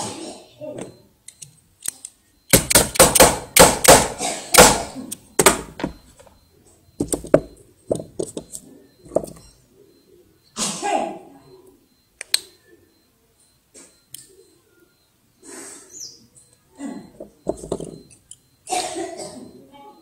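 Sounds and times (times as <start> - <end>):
sharp metal clicks and knocks: 1.3 - 4.7.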